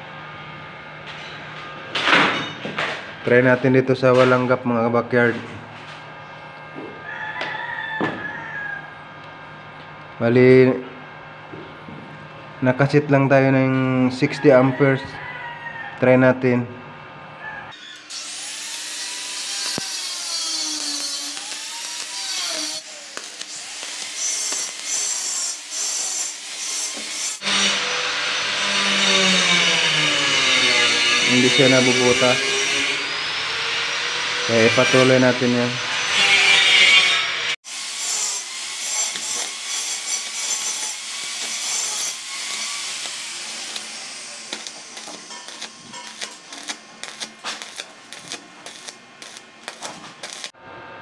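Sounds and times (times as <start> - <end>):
welding arc hissing: 17.9 - 27.8, 37.6 - 50.6.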